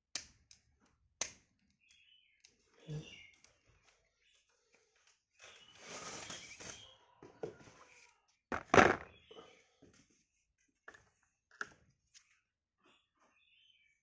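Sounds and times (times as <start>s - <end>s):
loud thunk: 8.5s - 9.1s
metal object knocking on cardboard box: 8.5s - 9.1s.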